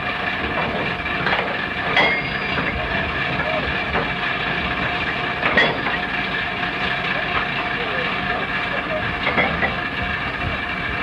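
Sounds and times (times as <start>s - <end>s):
deck machinery noise: 0.0s - 11.0s
sharp metal clank: 1.3s - 2.8s, 5.4s - 6.0s.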